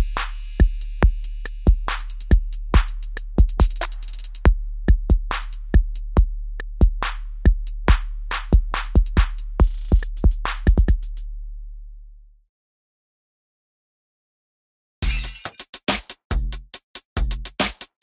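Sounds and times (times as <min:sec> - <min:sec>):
drum-machine beat: 0:00.0 - 0:11.2, 0:15.0 - 0:18.0.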